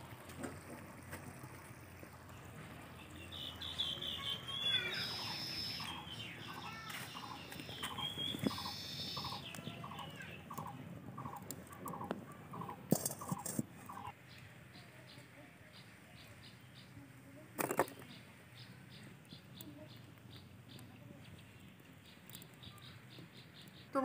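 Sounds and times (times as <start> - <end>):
birds calling: 3.0 - 17.0, 17.8 - 24.0
bird chirps and whistles: 3.4 - 6.1, 7.6 - 10.2.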